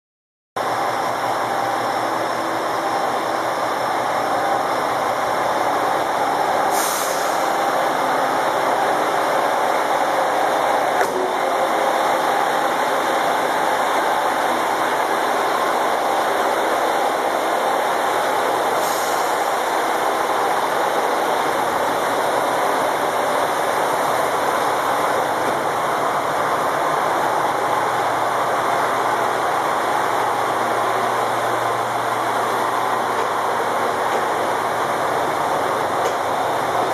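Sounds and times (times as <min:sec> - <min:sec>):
diesel railcar engines running: 0:00.6 - 0:36.9
short hisses of air: 0:06.7 - 0:07.5, 0:18.8 - 0:19.5.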